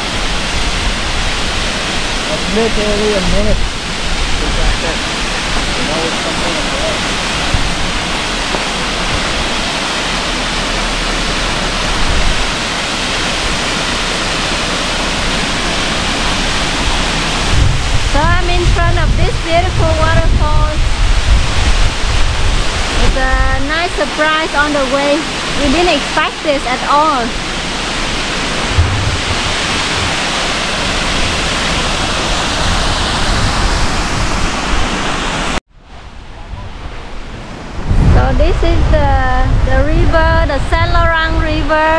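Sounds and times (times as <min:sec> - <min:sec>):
waterfall rushing: 0:00.0 - 0:38.9.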